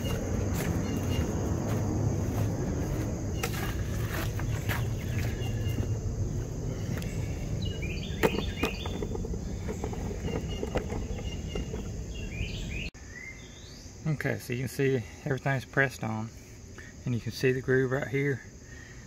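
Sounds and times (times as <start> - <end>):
bird chirps: 0.0 - 1.4, 2.9 - 14.0
low background rumble: 0.0 - 12.9.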